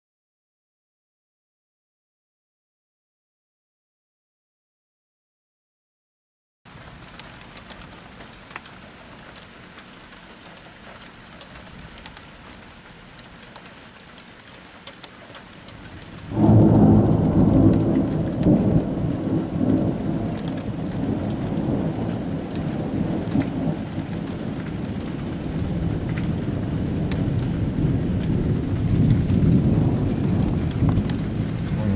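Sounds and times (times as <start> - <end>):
rain hissing: 6.7 - 31.9
thunderclap rumbling: 15.7 - 31.9.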